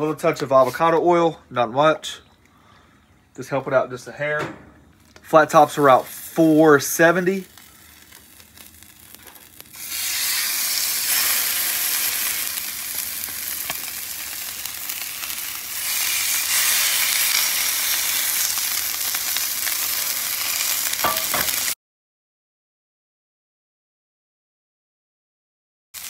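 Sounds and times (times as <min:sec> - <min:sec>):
steaks sizzling on a griddle: 0:05.6 - 0:21.8.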